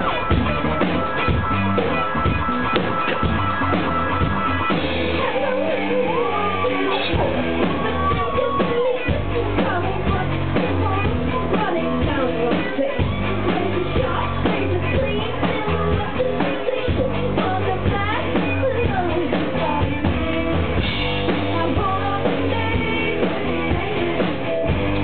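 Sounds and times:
drum beat: 0.0 - 5.4, 7.1 - 25.0
bass: 0.0 - 25.0
guitar: 0.0 - 25.0
keyboards: 0.0 - 25.0
person singing: 5.0 - 24.7.

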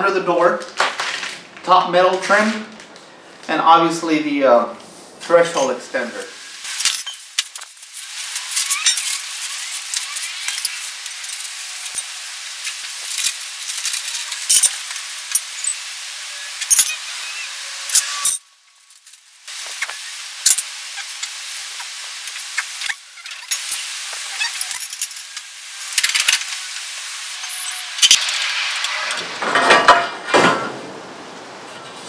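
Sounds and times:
steady hiss: 2.6 - 29.8
metal pieces clicking and clinking: 6.7 - 15.8, 16.6 - 17.0, 17.9 - 19.2, 19.8 - 21.3, 24.4 - 26.6.

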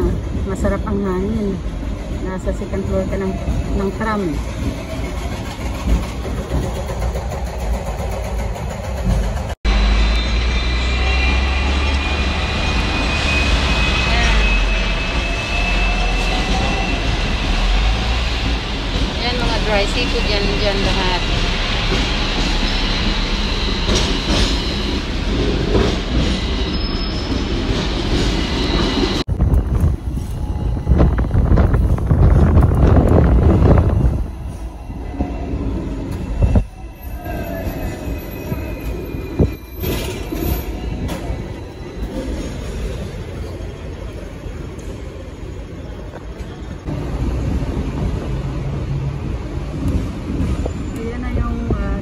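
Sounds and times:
tram wheels rumbling on rails: 0.0 - 52.0
wind buffeting microphone: 29.2 - 36.8.

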